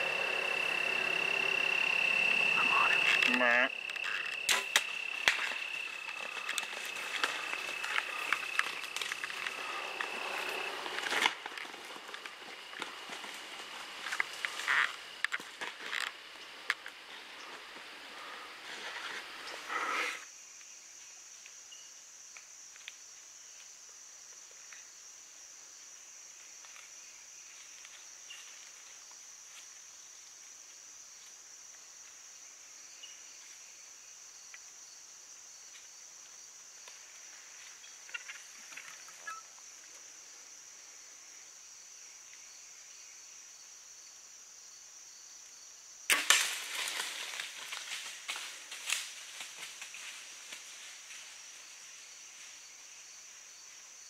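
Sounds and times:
insects droning: 0.0 - 54.0
bow shot crack: 4.4 - 5.6, 46.1 - 47.3
deer running through leaves: 5.4 - 13.7, 46.5 - 52.4.

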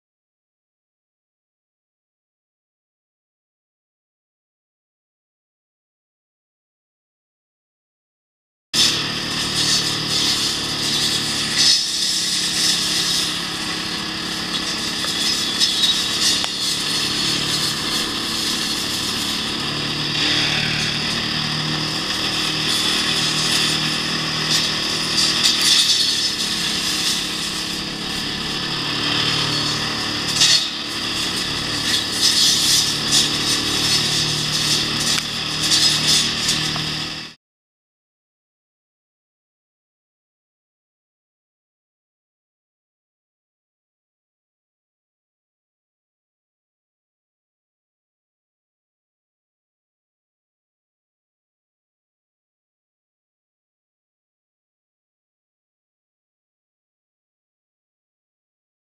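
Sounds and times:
gas engine running: 8.8 - 37.4
saw blades cutting limbs: 8.8 - 37.4.

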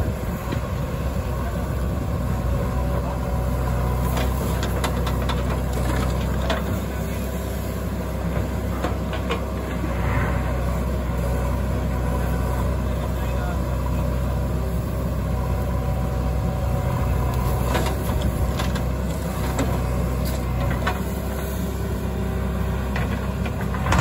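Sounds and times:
diesel engine running: 0.0 - 24.0
knocks and clanks from digger arm: 3.9 - 6.8, 8.3 - 9.8, 17.3 - 21.2, 22.9 - 24.0.

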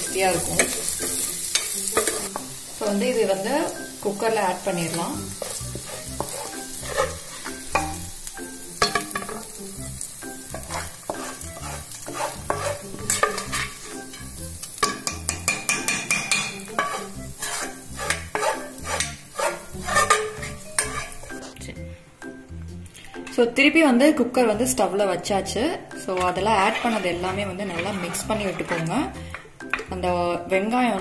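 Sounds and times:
spoon scraping frying pan: 0.0 - 8.1, 10.3 - 21.6, 26.0 - 30.0.

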